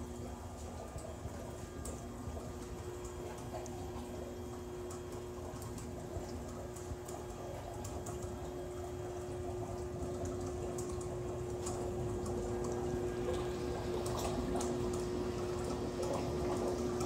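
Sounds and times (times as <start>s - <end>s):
steady machine hum: 0.0s - 17.0s
water bubbling and gurgling: 0.0s - 17.0s.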